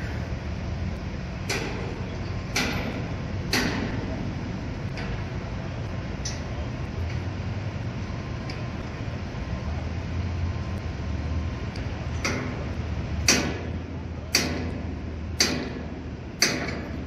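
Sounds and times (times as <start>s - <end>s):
machinery engine rumble: 0.0s - 17.0s
sharp metallic bangs: 1.4s - 5.4s, 12.2s - 17.0s.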